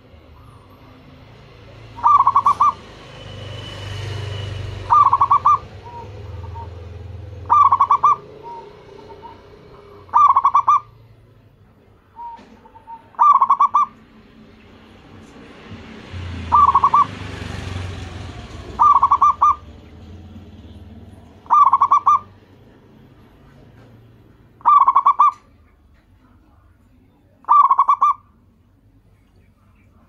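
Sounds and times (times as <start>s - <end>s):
dove cooing: 1.6s - 3.0s, 4.7s - 11.3s, 12.1s - 14.0s, 16.2s - 20.2s, 21.0s - 25.6s, 27.4s - 28.4s.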